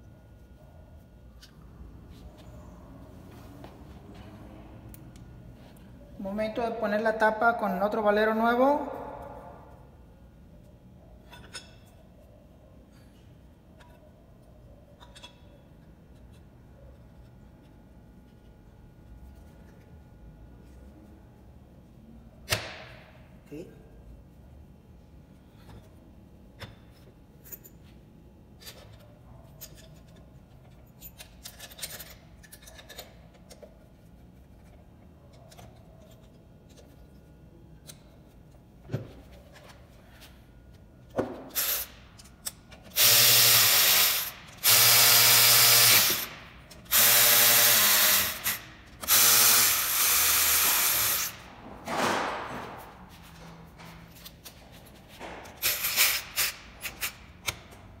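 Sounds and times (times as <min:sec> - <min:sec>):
clicks and clinks of parts: 0:11.2 - 0:12.0, 0:15.0 - 0:15.5, 0:28.6 - 0:34.0
electric ratchet driving screws: 0:41.6 - 0:42.0, 0:42.9 - 0:51.4, 0:55.6 - 0:57.2.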